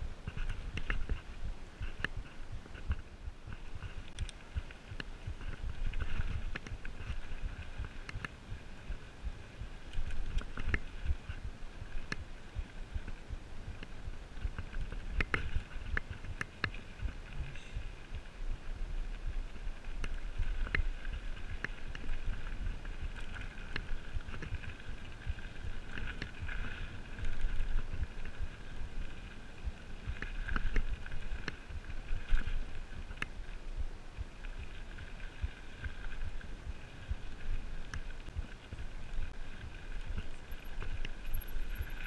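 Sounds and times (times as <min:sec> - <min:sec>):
bike tyres rolling on dirt: 0:00.0 - 0:42.0
wind rumble on microphone: 0:00.0 - 0:42.0.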